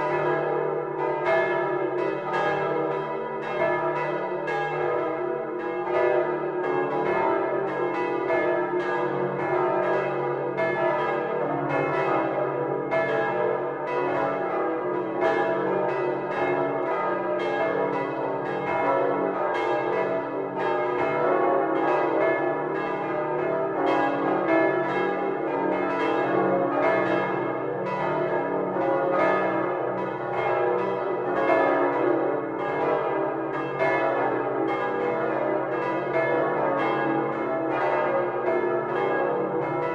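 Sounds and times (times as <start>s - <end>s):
large bells pealing: 0.0s - 39.9s.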